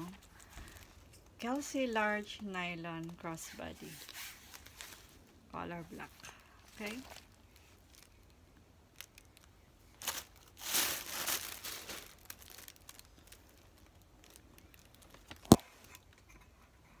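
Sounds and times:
tissue paper crinkling: 2.9 - 8.3, 8.9 - 15.6.

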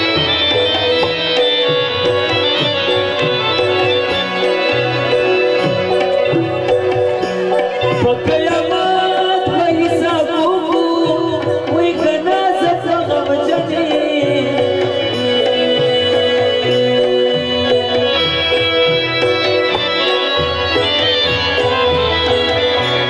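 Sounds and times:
man singing: 7.8 - 21.7.

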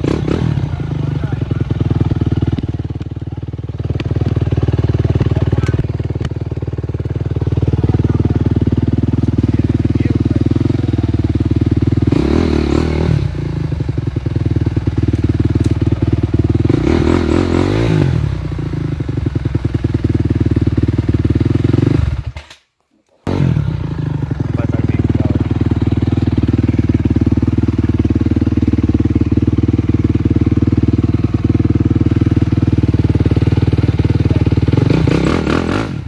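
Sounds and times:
dirt bike engines idling: 0.0 - 22.3, 23.3 - 36.0.

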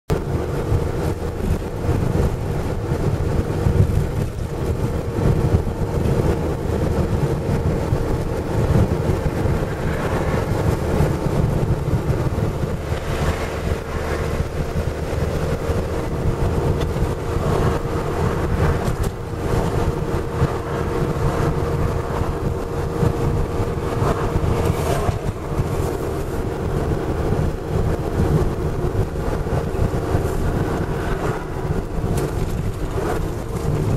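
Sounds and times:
car engine and tyres rumbling: 0.1 - 33.9.

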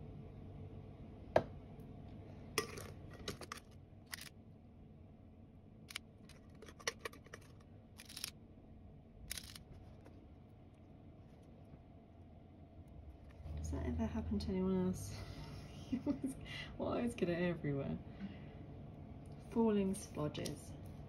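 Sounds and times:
metal scoop clicking: 6.3 - 8.3.

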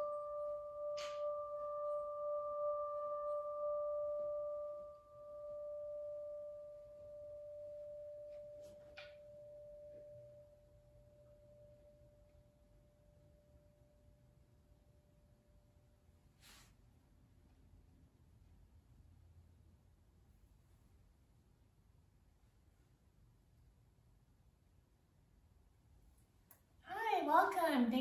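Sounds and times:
metal singing bowl ringing: 0.0 - 15.0.

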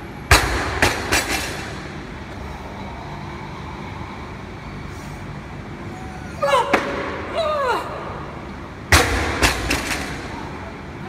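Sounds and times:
barbell bouncing: 8.9 - 10.4.

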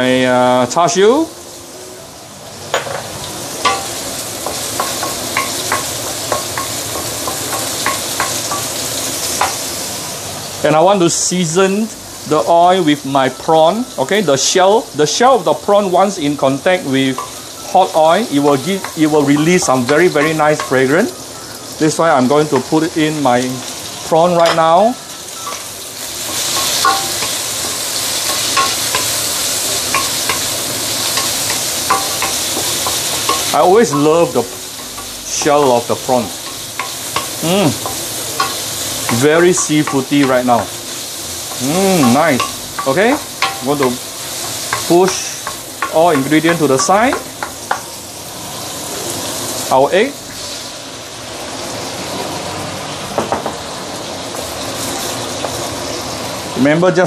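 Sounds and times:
food sizzling in oil: 0.0 - 57.0
spatula scraping and knocking wok: 2.8 - 9.8, 18.4 - 21.0, 24.4 - 48.1
wooden spatula knocking on wok: 41.5 - 47.9.

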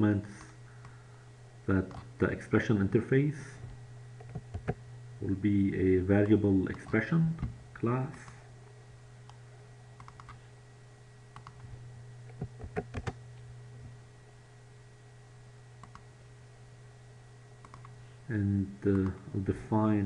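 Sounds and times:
steady low hum: 0.0 - 20.0
computer keyboard typing: 10.0 - 10.4, 11.4 - 11.6, 12.3 - 13.2, 17.6 - 17.9.

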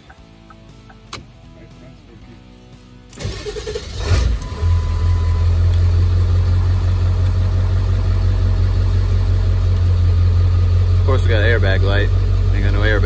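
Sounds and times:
diesel engine starting and idling: 3.1 - 13.0.

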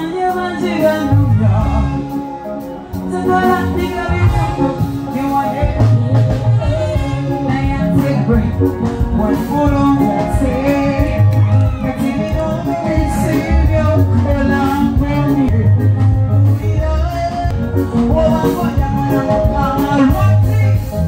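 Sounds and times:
woman singing into a microphone: 0.0 - 15.7
heavy pulsing bass: 0.0 - 21.0
live band playing: 0.0 - 21.0.

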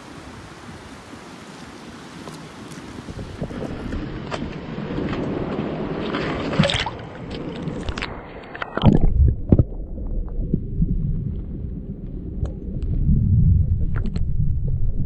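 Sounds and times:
water sloshing around rocks: 1.3 - 10.4
low rumble: 3.3 - 15.0.

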